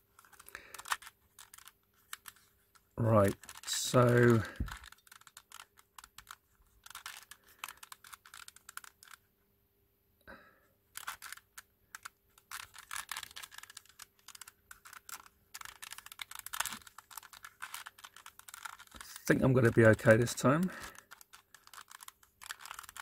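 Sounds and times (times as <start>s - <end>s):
puzzle pieces clicking and clacking: 0.2s - 9.2s, 11.0s - 23.0s.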